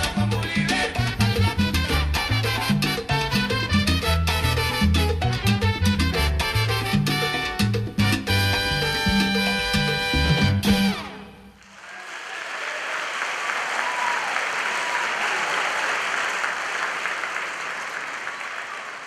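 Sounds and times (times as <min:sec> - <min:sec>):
salsa music final hit: 0:00.0 - 0:11.4
audience applauding: 0:11.6 - 0:19.0.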